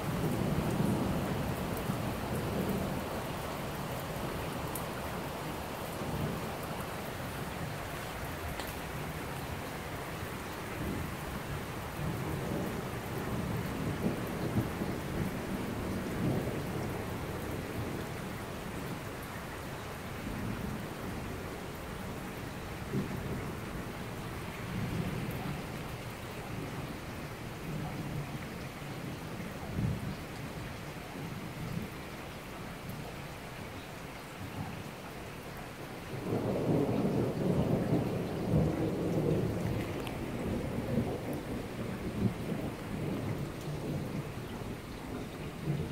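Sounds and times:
heavy rain on a street: 0.0 - 45.9
rolling thunder rumble: 36.2 - 45.9.

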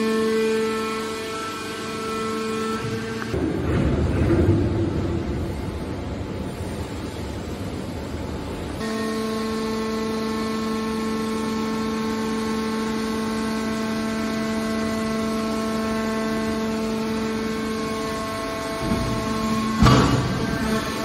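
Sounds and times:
hydraulic pump motor humming: 0.0 - 4.4, 8.8 - 21.0.

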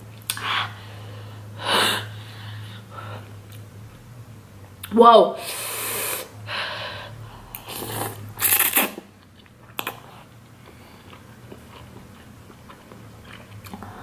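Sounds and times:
slurping noodles: 7.5 - 9.1
wet chewing: 7.5 - 13.9.

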